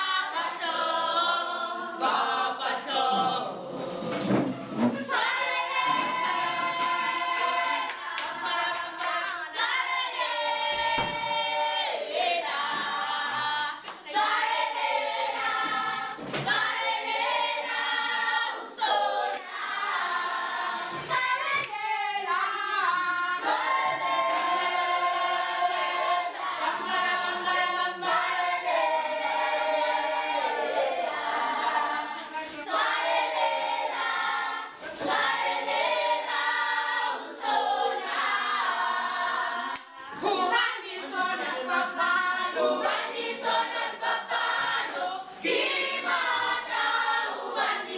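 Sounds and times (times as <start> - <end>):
students singing unaccompanied: 0.0 - 47.9.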